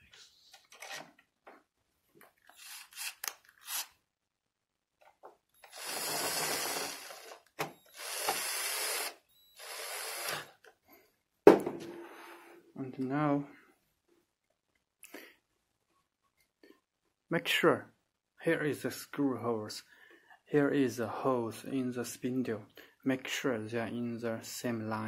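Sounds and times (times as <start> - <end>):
cordless drill driving screws: 2.5 - 3.9, 5.6 - 10.6.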